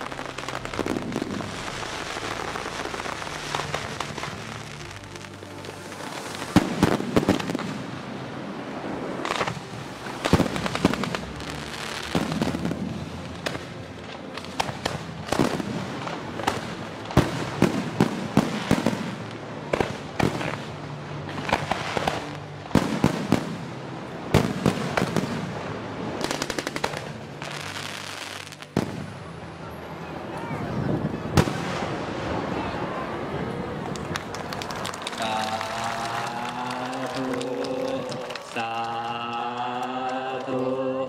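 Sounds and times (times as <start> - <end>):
fireworks bangs and crackling: 0.0 - 29.2, 31.3 - 32.9.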